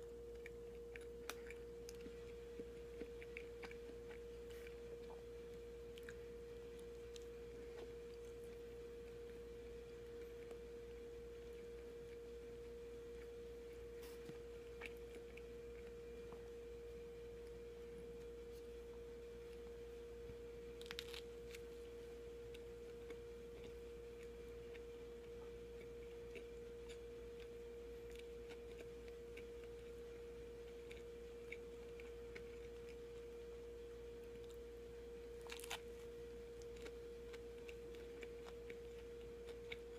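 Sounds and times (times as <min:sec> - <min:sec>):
person chewing sandwich: 0:00.0 - 0:39.9
steady single-pitched hum: 0:00.0 - 0:39.9
small clicks and crackles: 0:20.8 - 0:30.0.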